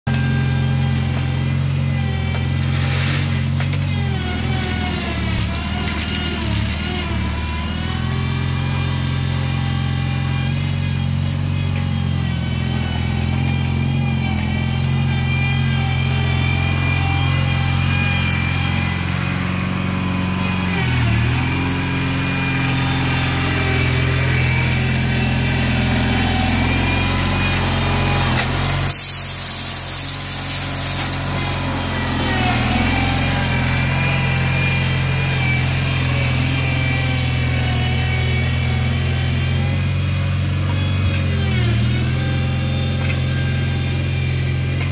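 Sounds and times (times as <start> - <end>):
tractor engine running: 0.0 - 44.9.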